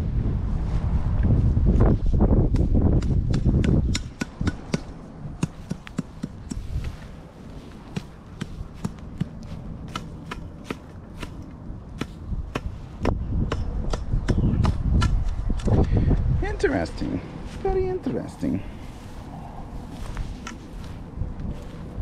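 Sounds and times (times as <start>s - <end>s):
wind buffeting microphone: 0.0s - 22.0s
footsteps through dry grass: 5.5s - 11.4s, 17.2s - 22.0s.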